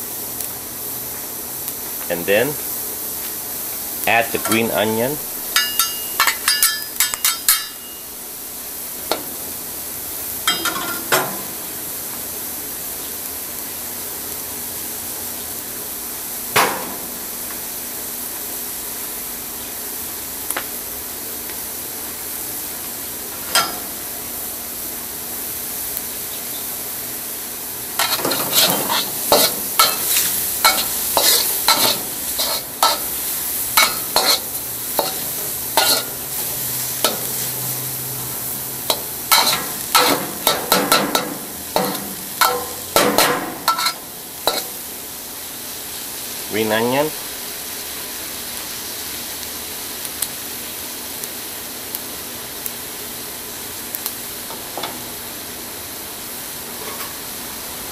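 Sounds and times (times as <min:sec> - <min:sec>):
food sizzling in a wok: 0:00.0 - 0:57.9
metal spatula clacking on wok: 0:05.6 - 0:07.9, 0:38.9 - 0:44.7
spatula scraping wok: 0:27.9 - 0:44.9.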